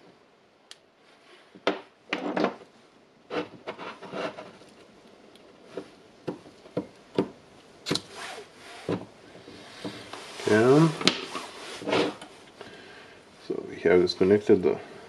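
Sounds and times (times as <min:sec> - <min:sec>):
soldering iron scraping and tapping: 0:10.8 - 0:12.6.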